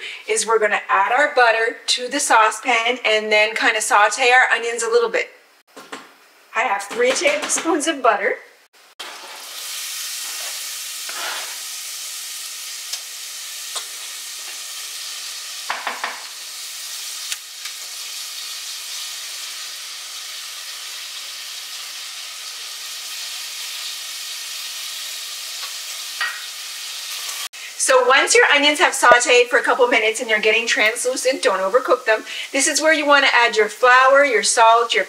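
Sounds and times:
onion sizzling in butter: 0:08.8 - 0:35.0
spatula scraping and tapping pan: 0:10.2 - 0:11.6.

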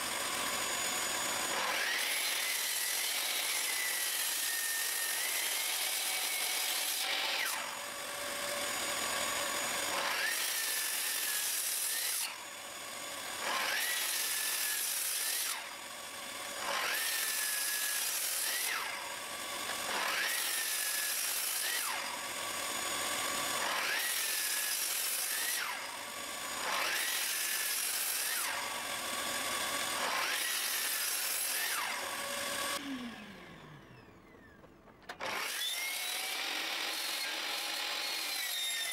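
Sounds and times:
saw blade spinning down: 0:00.0 - 0:12.5, 0:16.5 - 0:22.2, 0:23.1 - 0:38.9
miter saw cutting wood: 0:00.0 - 0:38.9.

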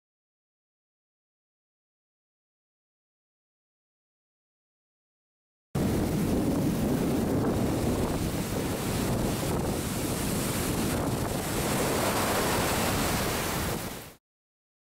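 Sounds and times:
wind buffeting microphone: 0:05.8 - 0:14.1
ocean surf rushing: 0:05.8 - 0:14.2.

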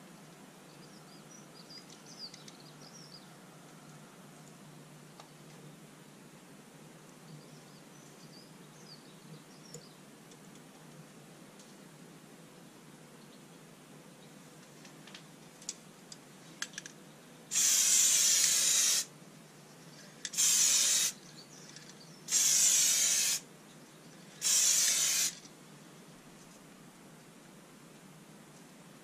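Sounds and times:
aerosol spray can hissing: 0:17.5 - 0:19.1, 0:20.3 - 0:21.2, 0:22.3 - 0:23.4, 0:24.4 - 0:25.4.

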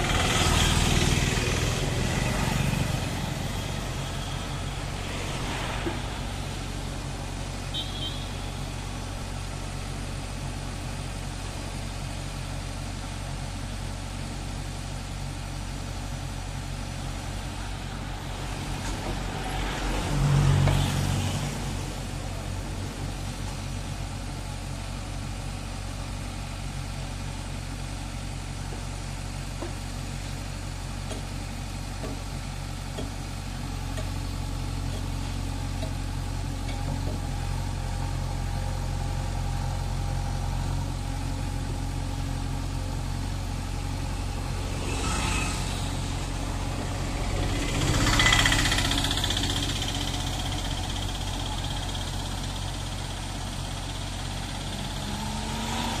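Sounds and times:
diesel engine idling: 0:00.0 - 0:56.0
rush of broad noise: 0:01.3 - 0:09.2, 0:44.0 - 0:50.4.

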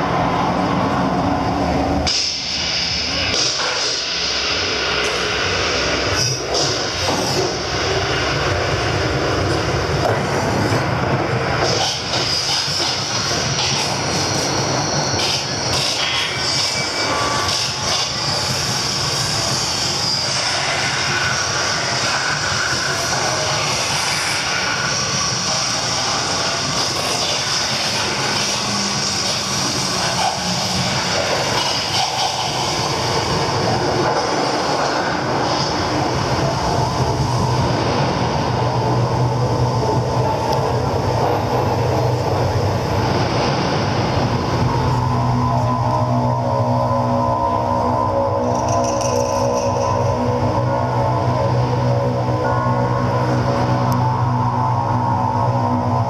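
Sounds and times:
dense droning rush: 0:00.0 - 0:56.0
held low tones: 0:35.2 - 0:56.0.

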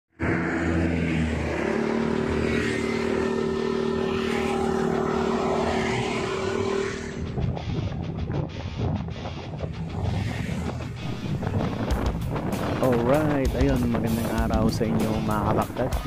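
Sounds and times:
scooter engine revving: 0:00.2 - 0:07.4.

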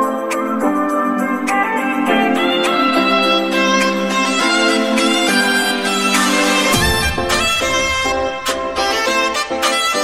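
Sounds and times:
steady low drone: 0:06.7 - 0:09.2.

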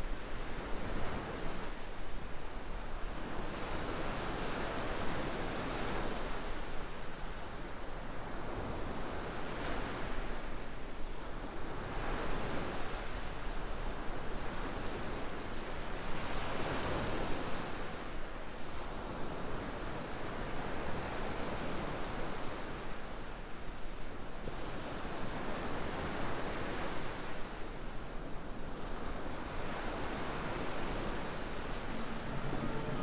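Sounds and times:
ocean waves washing: 0:28.6 - 0:33.0.

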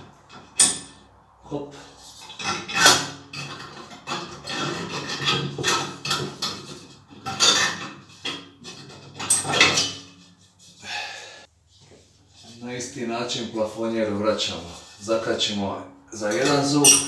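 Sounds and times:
glass shade clinking against metal: 0:00.3 - 0:01.1, 0:02.3 - 0:10.2, 0:16.3 - 0:17.0.

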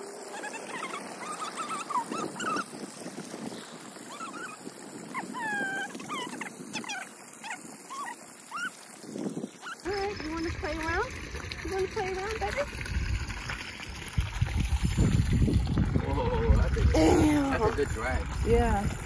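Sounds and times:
dog whining: 0:00.2 - 0:02.7, 0:04.1 - 0:08.8.

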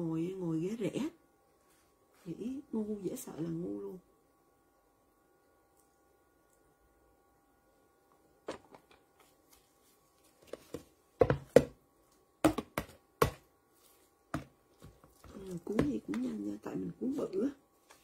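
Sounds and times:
taps and knocks on cutting board: 0:11.2 - 0:11.8, 0:12.4 - 0:13.4.

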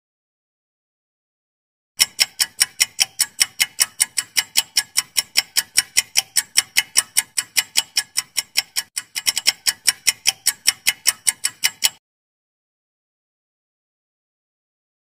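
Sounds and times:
clock-like ticking: 0:02.0 - 0:12.0.

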